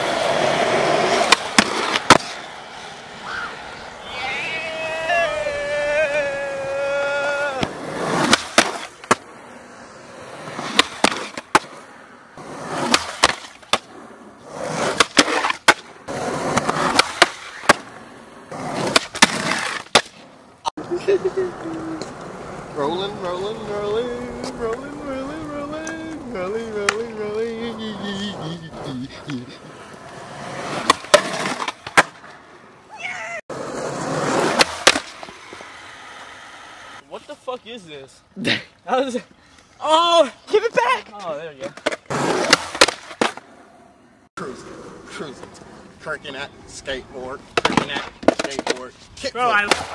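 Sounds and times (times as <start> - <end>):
skateboard wheels rolling on asphalt: 0.0 - 49.9
skateboard clacks: 0.5 - 2.4, 5.9 - 9.3, 10.6 - 11.8, 12.8 - 13.9, 14.9 - 17.9, 18.7 - 20.8, 29.2 - 32.4, 34.4 - 35.8, 41.2 - 43.4, 47.5 - 49.9.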